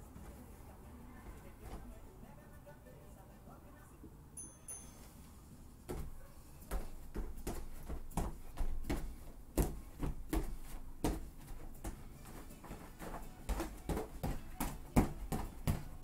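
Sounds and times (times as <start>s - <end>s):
feet thudding on foam mats: 5.8s - 16.0s.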